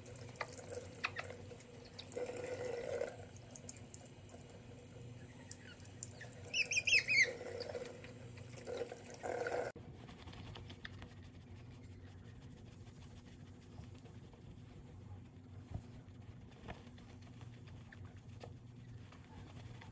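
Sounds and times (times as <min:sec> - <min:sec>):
running sink tap: 0:00.0 - 0:09.8
puppy squealing: 0:05.2 - 0:07.8.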